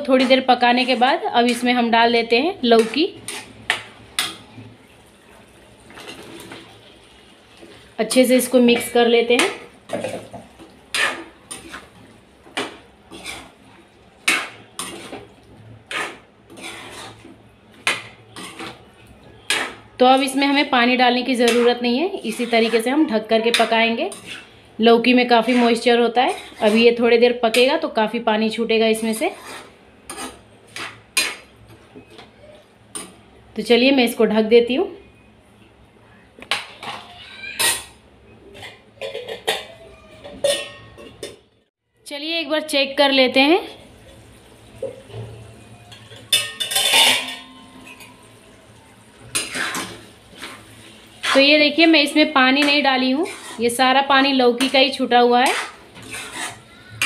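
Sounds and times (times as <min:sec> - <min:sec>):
metal spatula scraping metal pan: 0:00.0 - 0:01.9, 0:02.7 - 0:03.6, 0:08.1 - 0:13.6, 0:14.2 - 0:15.3, 0:15.9 - 0:27.7, 0:29.0 - 0:31.5, 0:45.8 - 0:48.4, 0:49.2 - 0:57.0
metal lid clanking on cookware: 0:38.6 - 0:41.4, 0:45.9 - 0:48.2.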